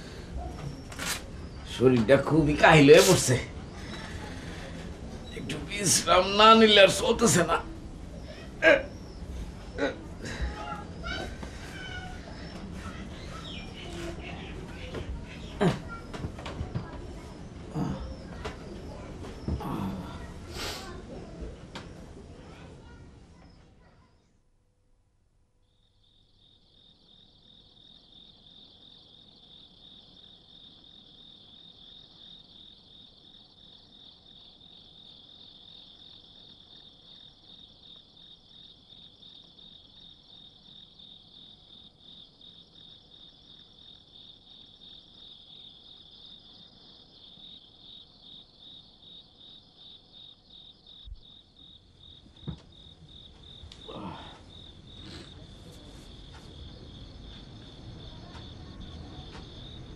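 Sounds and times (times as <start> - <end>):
crickets chirring: 0.0 - 23.6, 25.6 - 59.9
faint knocks: 52.1 - 57.6.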